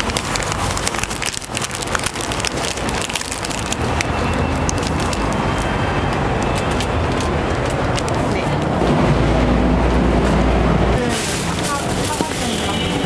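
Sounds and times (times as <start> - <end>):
paper wrapper crinkling: 0.0 - 8.3, 11.0 - 13.0.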